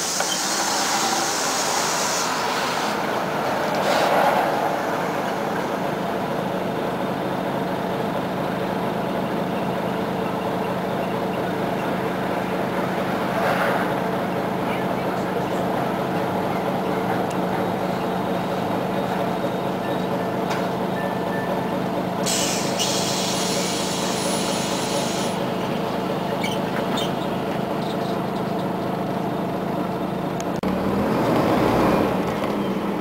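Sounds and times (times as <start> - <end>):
compressed-air hiss: 0.0 - 3.0, 22.3 - 25.4
bus diesel engine idling: 0.0 - 31.0, 32.0 - 33.0.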